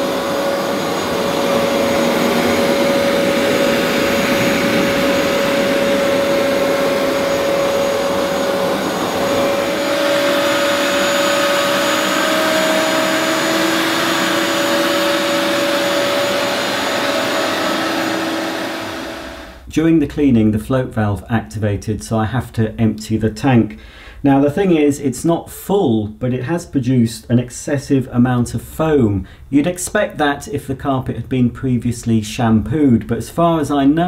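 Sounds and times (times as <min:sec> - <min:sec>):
carpet washer suction whine: 0:00.0 - 0:19.7.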